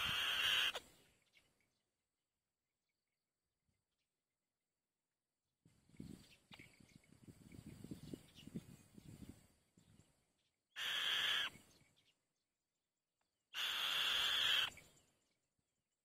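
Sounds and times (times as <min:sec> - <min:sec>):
bird screeching calls: 0:00.0 - 0:00.8, 0:10.8 - 0:11.6, 0:13.6 - 0:14.8.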